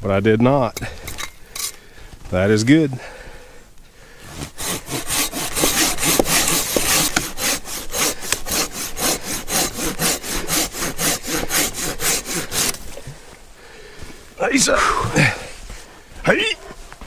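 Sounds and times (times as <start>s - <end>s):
pruning saw cutting log: 4.3s - 13.0s.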